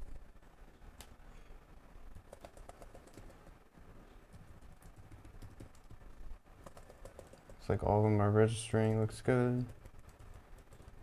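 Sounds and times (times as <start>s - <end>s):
laptop keys clicking: 2.2s - 3.5s, 4.3s - 6.0s, 6.6s - 7.7s, 9.5s - 11.0s.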